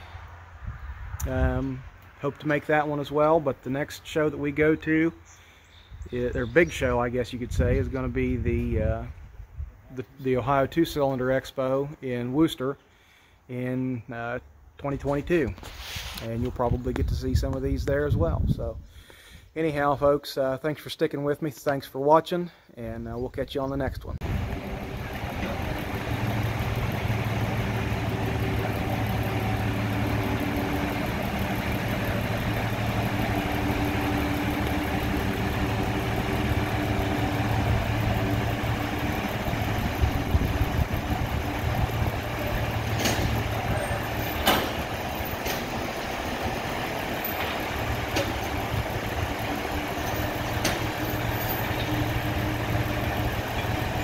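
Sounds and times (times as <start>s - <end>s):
tractor engine running: 24.1s - 54.0s.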